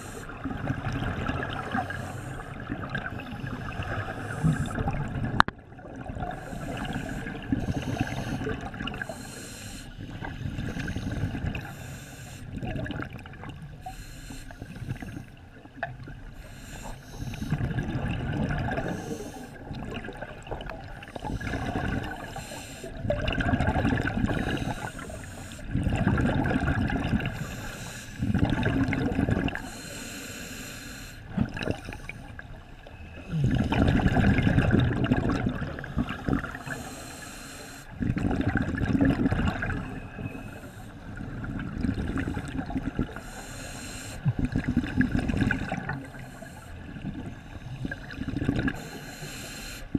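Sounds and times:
exhaled bubbles gurgling underwater: 0.0s - 49.9s
regulator inhalation hiss: 1.7s - 2.6s, 6.4s - 12.5s, 13.8s - 15.3s, 16.4s - 17.6s, 21.1s - 23.0s, 24.3s - 25.7s, 27.3s - 28.3s, 29.6s - 32.2s, 36.6s - 38.0s, 43.1s - 44.3s, 48.8s - 49.9s.

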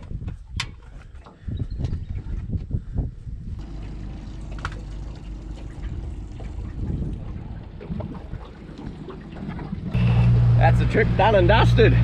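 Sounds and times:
water lapping against boat hull: 0.0s - 2.8s, 3.6s - 12.0s
wind on microphone: 0.0s - 3.7s, 5.7s - 9.0s.

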